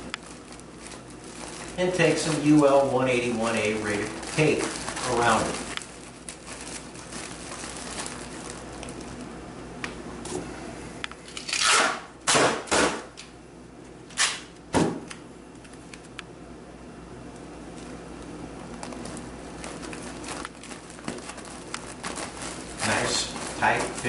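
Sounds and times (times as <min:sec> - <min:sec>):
duct tape ripping off roll: 0:11.4 - 0:13.0, 0:14.1 - 0:14.5.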